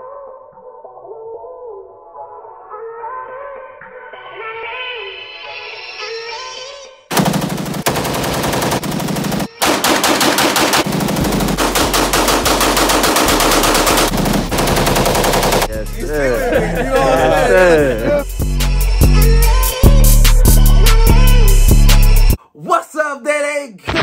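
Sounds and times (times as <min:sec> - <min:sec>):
music: 0:00.0 - 0:07.1, 0:11.4 - 0:22.4
rapid automatic gunfire: 0:07.1 - 0:15.8.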